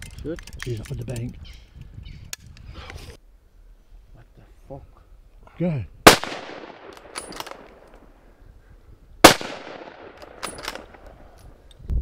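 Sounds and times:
sharp clicks: 0.0 - 1.6
loud rifle shot with echo: 6.0 - 7.7, 9.2 - 10.4.

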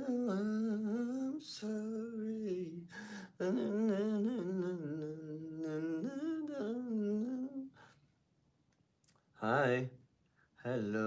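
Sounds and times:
man humming a melody: 0.0 - 7.8.

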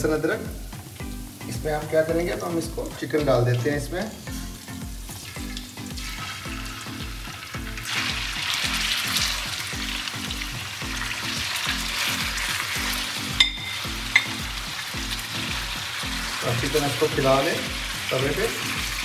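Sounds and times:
chicken sizzling in fat: 0.0 - 19.0.

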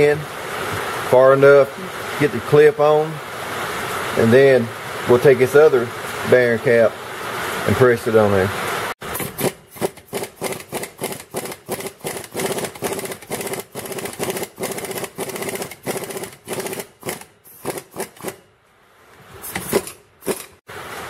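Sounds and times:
ratchet wrench clicking: 9.2 - 18.4, 19.5 - 20.6.

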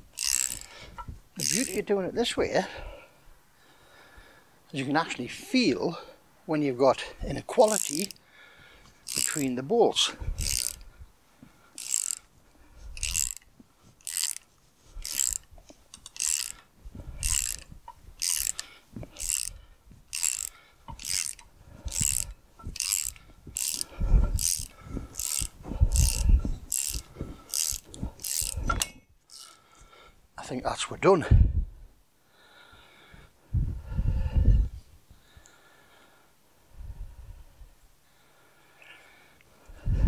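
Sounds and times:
ratchet wrench clicking: 0.2 - 0.8, 1.4 - 1.8, 7.6 - 8.2, 9.0 - 9.5, 10.4 - 10.9, 11.8 - 12.3, 13.0 - 29.6.

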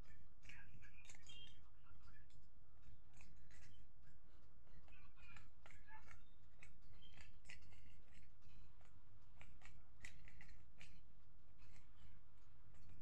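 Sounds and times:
steady low hum: 0.0 - 13.0
plastic puzzle cube clicking: 2.3 - 3.8, 4.9 - 13.0.

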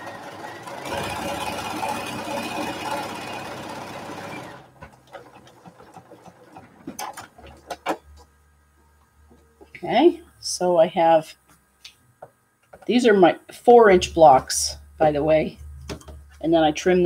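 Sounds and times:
sewing machine stitching: 0.0 - 8.0.

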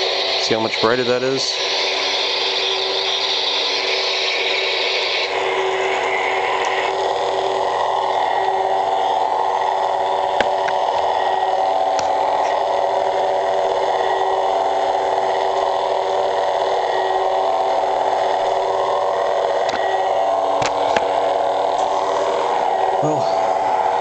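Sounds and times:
lightsaber electronic hum: 0.0 - 24.0.

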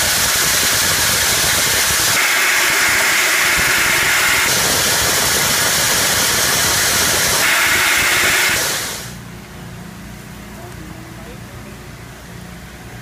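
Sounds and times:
press machine hissing and humming: 0.0 - 9.2.

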